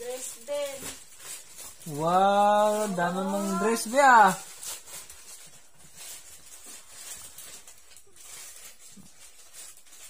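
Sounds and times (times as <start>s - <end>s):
plastic bag rustling: 0.0s - 10.0s.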